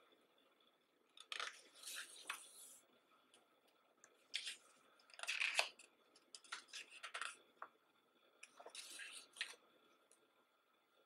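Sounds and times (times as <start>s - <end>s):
book pages turning: 1.2s - 2.8s, 4.2s - 7.7s, 8.4s - 9.6s.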